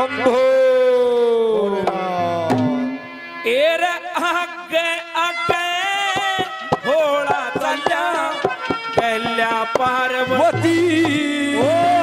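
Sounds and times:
man singing into a microphone: 0:00.0 - 0:12.0
drum strikes: 0:01.8 - 0:03.0, 0:06.1 - 0:12.0.

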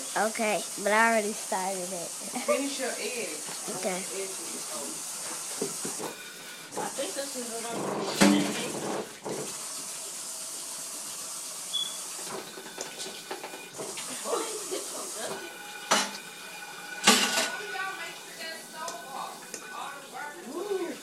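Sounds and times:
dishes and utensils handled: 0:17.0 - 0:17.6.

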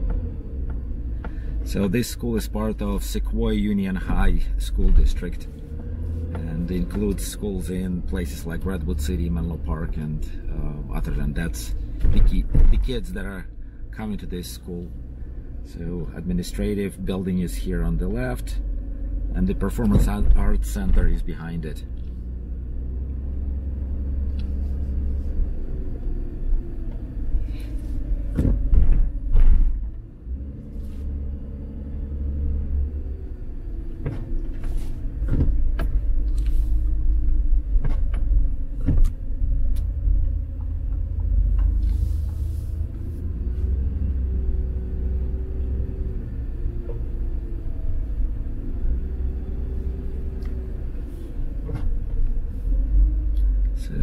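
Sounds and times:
car engine and tyres rumbling: 0:00.0 - 0:54.0.

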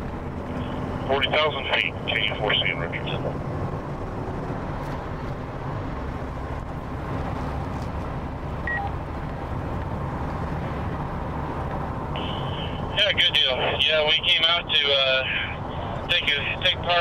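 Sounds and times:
road and engine noise in cabin: 0:00.0 - 0:17.0.

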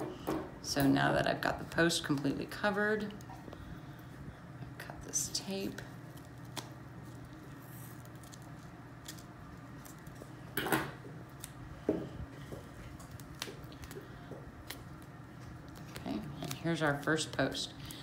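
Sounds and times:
tape rustling: 0:05.6 - 0:10.4.

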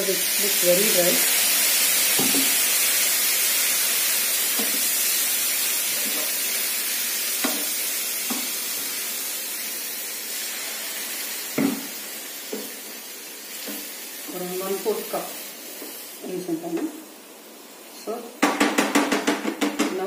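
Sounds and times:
water sizzling in hot pan: 0:00.0 - 0:18.4
wooden spatula knocking pan: 0:07.4 - 0:07.7, 0:18.4 - 0:20.0.

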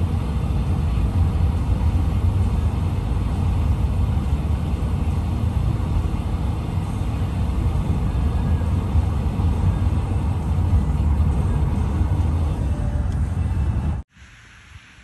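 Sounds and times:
car road rumble from inside: 0:00.0 - 0:14.1
faint hiss: 0:14.1 - 0:15.0.

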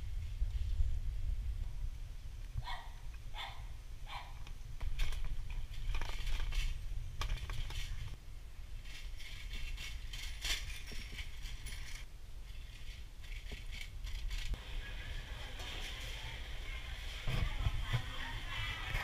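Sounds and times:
low rumble of rolling wheels: 0:00.0 - 0:19.0
bicycle rattling and clicking: 0:04.8 - 0:08.2, 0:08.8 - 0:14.6.

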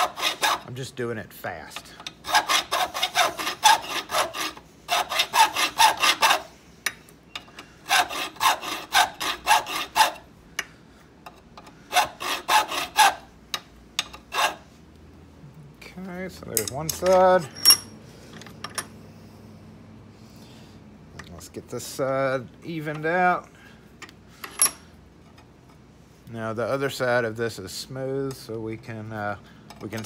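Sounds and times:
hand file rasping on metal: 0:00.0 - 0:00.8, 0:02.2 - 0:06.5, 0:07.8 - 0:10.3, 0:11.9 - 0:13.3, 0:14.0 - 0:14.7.

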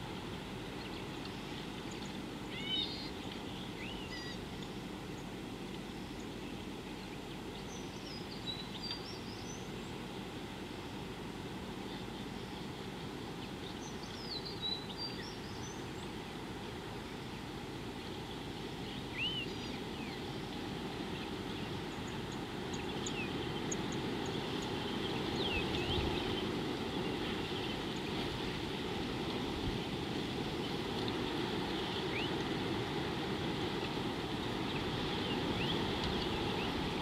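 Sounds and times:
low rushing background noise: 0:00.0 - 0:37.0
bird calls: 0:00.6 - 0:05.3, 0:18.3 - 0:20.3, 0:21.1 - 0:28.6, 0:31.5 - 0:32.5, 0:34.6 - 0:37.0.

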